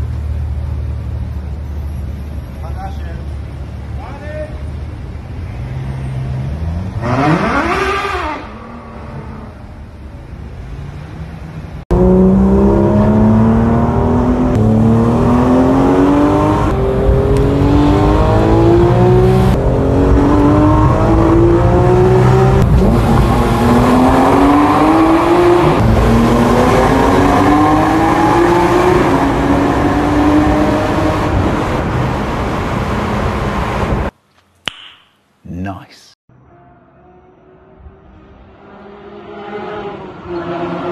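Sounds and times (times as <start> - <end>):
traffic noise: 0.0 - 40.9
car engine accelerating through gears: 5.5 - 9.6, 11.9 - 34.1.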